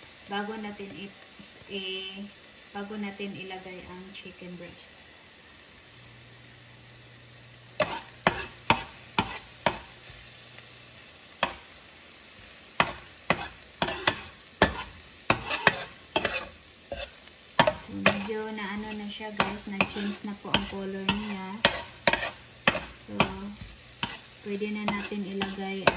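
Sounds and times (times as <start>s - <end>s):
food sizzling: 0.0s - 25.9s
spoon scraping frying pan: 7.8s - 10.2s, 11.4s - 11.7s, 12.8s - 25.9s.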